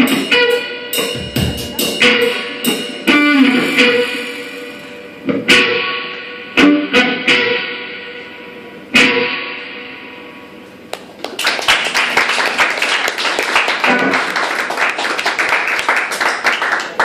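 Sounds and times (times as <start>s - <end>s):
electric guitar chord ringing: 0.2s - 10.7s
applause: 10.9s - 17.0s.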